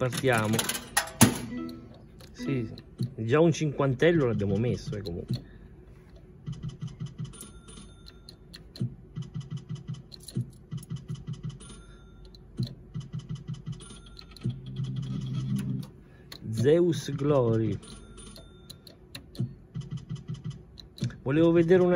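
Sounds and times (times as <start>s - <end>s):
low electronic tones: 1.5s - 3.2s.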